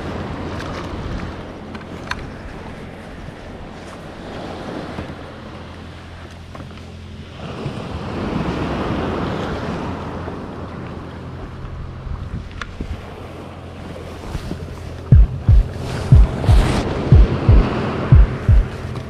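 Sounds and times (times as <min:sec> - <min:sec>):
water splashing and rushing: 0:00.0 - 0:19.0
low hum: 0:09.9 - 0:19.0
wind on microphone: 0:11.8 - 0:19.0.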